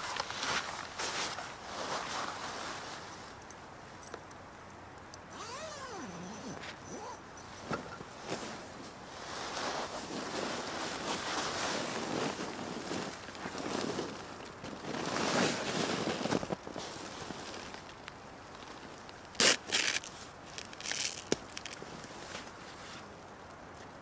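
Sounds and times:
nylon fabric rustling: 0:05.4 - 0:17.9, 0:19.4 - 0:23.1.

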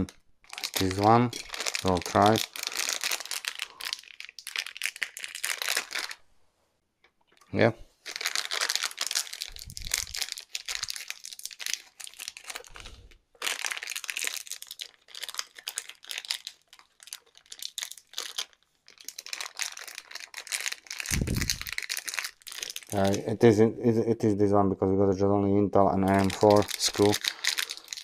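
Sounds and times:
plastic bag crinkling: 0:00.0 - 0:06.2, 0:07.4 - 0:23.4, 0:26.0 - 0:28.0.

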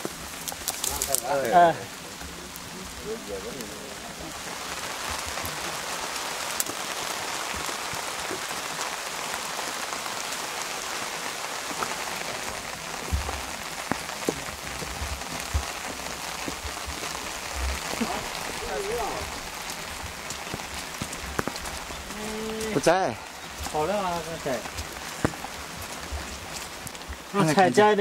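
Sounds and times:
steady rain falling: 0:00.0 - 0:28.0
dull low thumps: 0:12.9 - 0:22.3.

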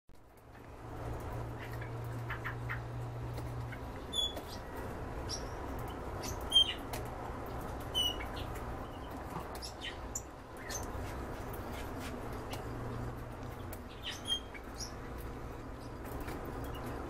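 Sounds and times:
canaries chirping: 0:01.5 - 0:17.0.

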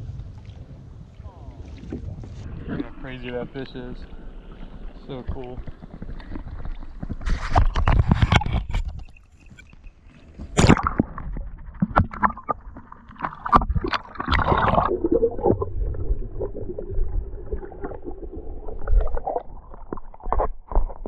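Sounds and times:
muffled underwater gurgling: 0:00.0 - 0:08.5
water splashing and sloshing: 0:00.0 - 0:21.0.

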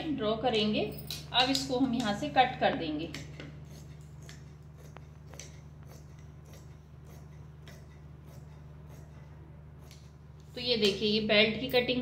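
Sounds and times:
scissors snipping fabric: 0:03.1 - 0:11.1.

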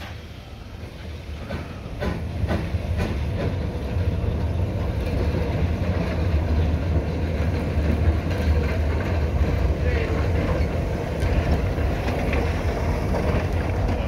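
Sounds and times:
train wheels rumbling on rail: 0:00.0 - 0:14.0.

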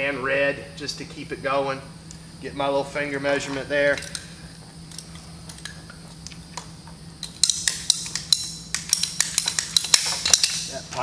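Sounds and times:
metal tools clicking and clinking: 0:03.5 - 0:04.3, 0:07.2 - 0:11.0.

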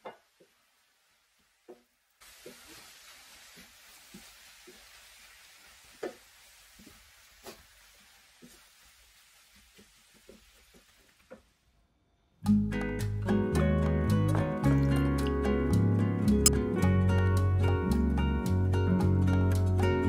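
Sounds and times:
food sizzling in a frying pan: 0:00.0 - 0:11.6
music: 0:12.4 - 0:20.0.

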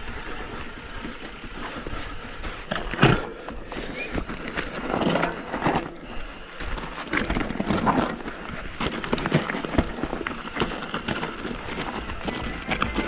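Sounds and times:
tyres crunching over gravel: 0:06.6 - 0:13.0
bike clattering over rocks: 0:06.9 - 0:13.0.

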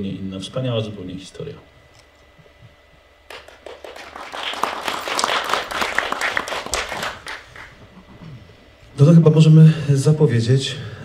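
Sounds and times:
audience applauding: 0:03.3 - 0:07.8.

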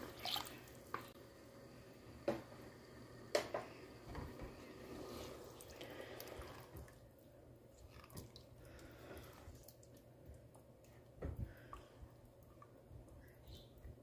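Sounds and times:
wet squishing and sloshing: 0:00.0 - 0:01.2, 0:05.1 - 0:12.7.

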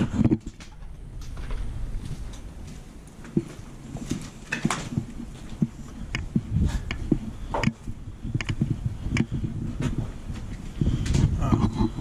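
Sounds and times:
footsteps crunching on debris: 0:00.4 - 0:07.2.

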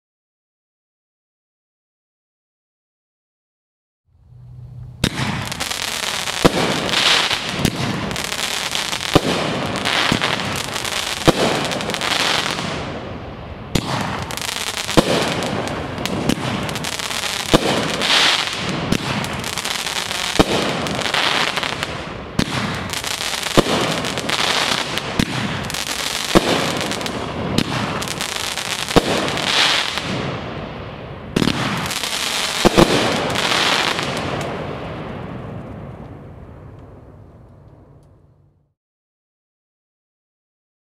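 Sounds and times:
fireworks hissing and crackling: 0:05.0 - 0:36.1
firework cracks: 0:05.0 - 0:38.2.

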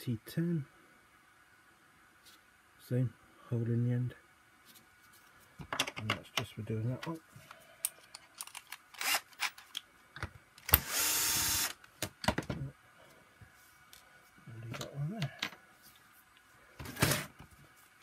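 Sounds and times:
cordless drill running: 0:09.0 - 0:09.5, 0:10.7 - 0:11.8.

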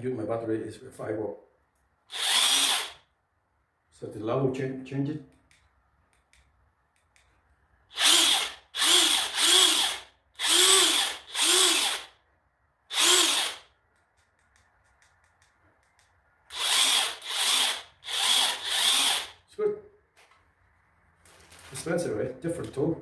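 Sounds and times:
impact wrench spinning: 0:08.0 - 0:12.2, 0:12.9 - 0:13.7, 0:16.5 - 0:19.4.

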